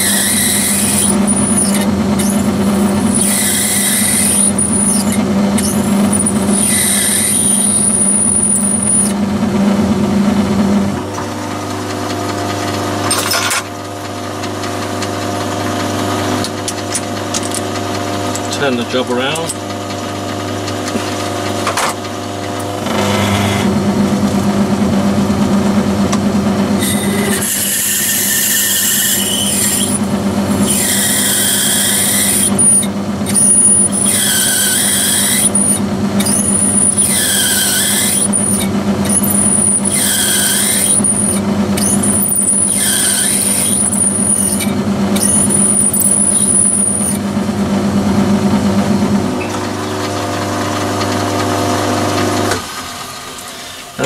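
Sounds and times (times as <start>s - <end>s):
drill squealing in metal: 0.0s - 9.2s, 22.8s - 23.7s, 26.8s - 47.2s
lathe motor running: 0.0s - 54.0s.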